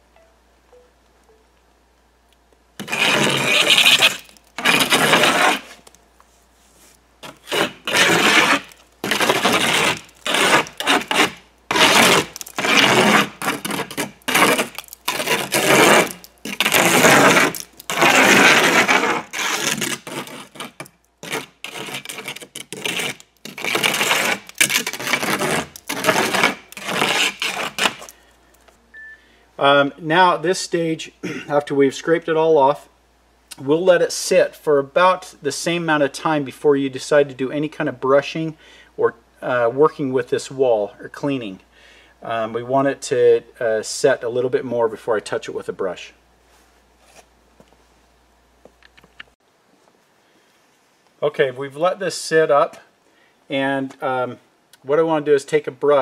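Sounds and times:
trowel scraping mortar off brick: 0:02.8 - 0:05.8, 0:07.2 - 0:28.1.

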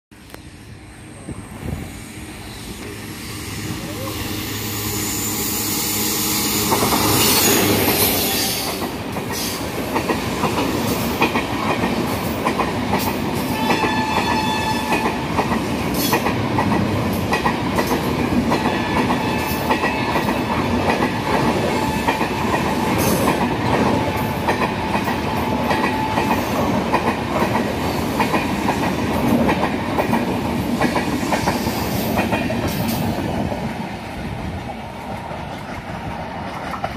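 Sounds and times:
rumble of train coaches: 0:00.1 - 0:36.9
electric locomotive passing: 0:00.2 - 0:36.9
wheels clacking over rail joints: 0:06.6 - 0:33.7.

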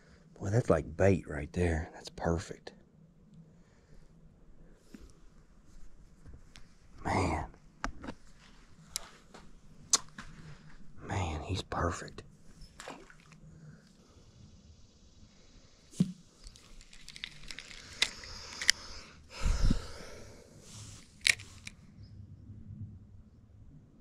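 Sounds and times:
handling clicks and rustling: 0:16.0 - 0:18.9, 0:21.0 - 0:21.8.

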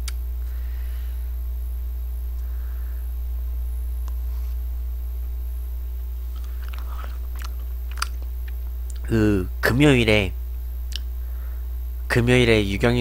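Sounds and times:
low electrical hum: 0:00.0 - 0:13.0
eating ice cream from spoon: 0:06.3 - 0:09.0.

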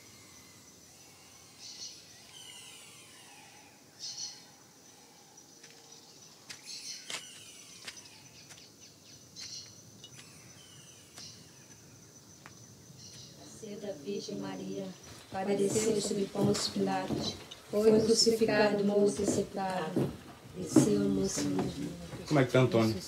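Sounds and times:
high insect hum: 0:00.0 - 0:23.0
birds chirping and whistling: 0:00.2 - 0:05.2, 0:06.0 - 0:20.0.

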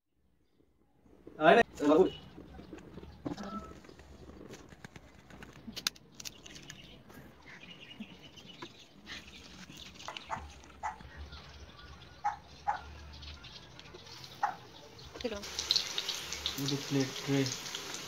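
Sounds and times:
faint animal calls: 0:03.1 - 0:04.0.

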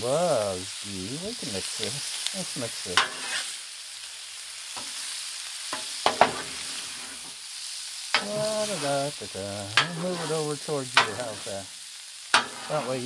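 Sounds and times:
food sizzling on a griddle: 0:00.0 - 0:13.0
metal spatula scraping steel plate: 0:03.0 - 0:03.5, 0:09.8 - 0:11.5, 0:12.3 - 0:13.0.

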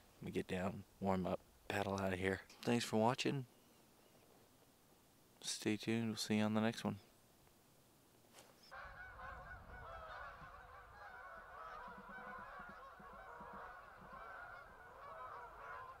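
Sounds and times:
geese honking in flight: 0:08.7 - 0:16.0.

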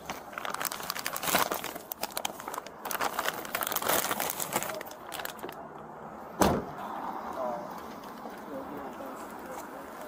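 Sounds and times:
rustling and crinkling handling: 0:00.0 - 0:05.7.

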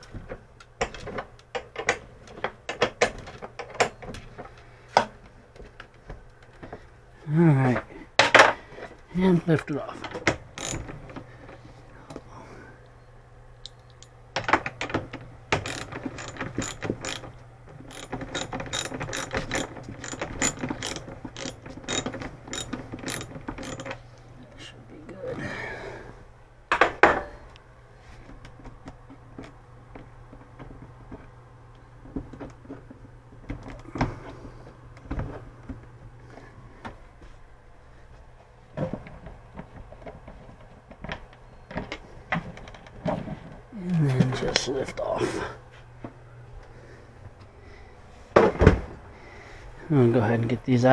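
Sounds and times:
metal clatter: 0:10.0 - 0:11.2, 0:14.0 - 0:24.0
ratchet wrench clicking: 0:10.6 - 0:10.9, 0:15.6 - 0:17.3, 0:17.9 - 0:24.0.

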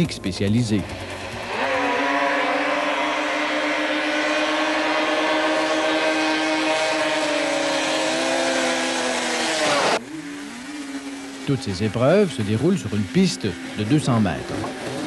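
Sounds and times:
snowmobile engines at full throttle: 0:00.0 - 0:15.0.

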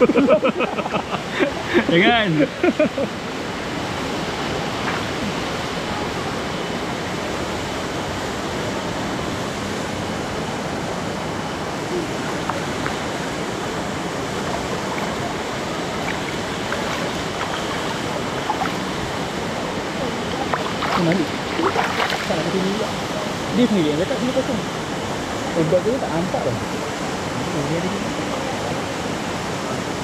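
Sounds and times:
waterfall and stream rushing: 0:00.0 - 0:30.0.

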